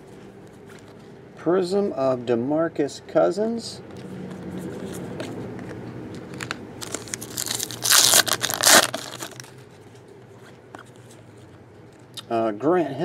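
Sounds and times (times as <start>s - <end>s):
foil wrapper crinkling and tearing: 6.3s - 9.6s.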